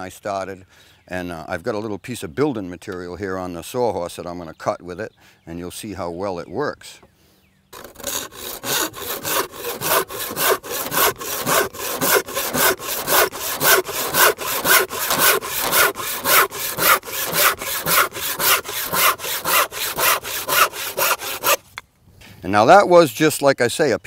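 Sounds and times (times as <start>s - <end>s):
handsaw cutting wood: 7.8s - 21.6s.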